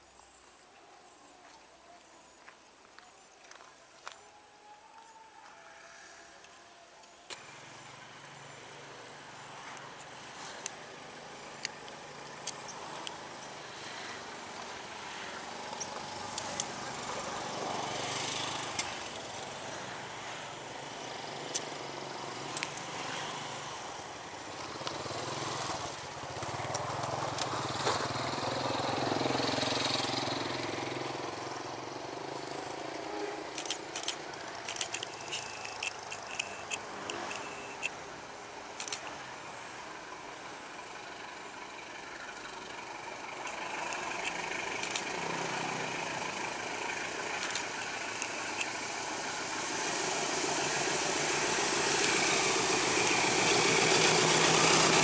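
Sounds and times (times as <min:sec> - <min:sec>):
diesel locomotive engine hum: 0:02.2 - 0:55.0
wheels clicking on track points: 0:32.1 - 0:38.0, 0:41.8 - 0:55.0
wheels squeaking on curved track: 0:32.4 - 0:37.9.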